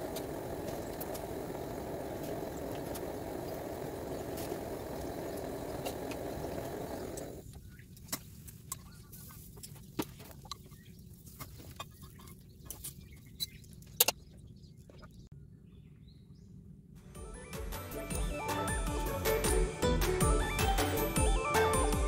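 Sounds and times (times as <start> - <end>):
gas stove hissing: 0.0 - 7.4.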